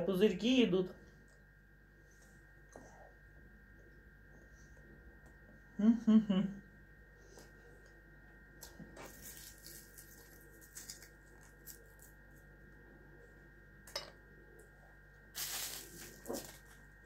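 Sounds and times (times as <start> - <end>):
faint electrical whine and hum: 0.0 - 17.0
tearing rustling noise: 15.4 - 16.8.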